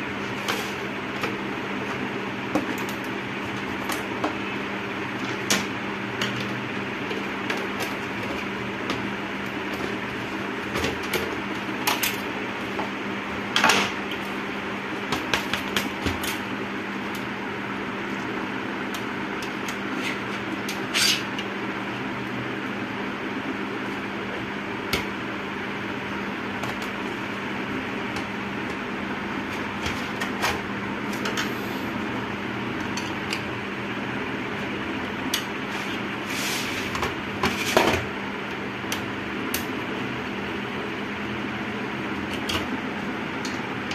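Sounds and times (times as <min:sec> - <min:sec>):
steady hum: 0:00.0 - 0:43.9.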